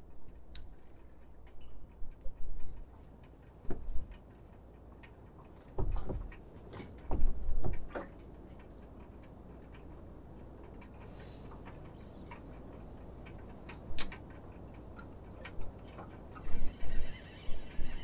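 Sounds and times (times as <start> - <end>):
sharp knocks: 5.8 - 8.2.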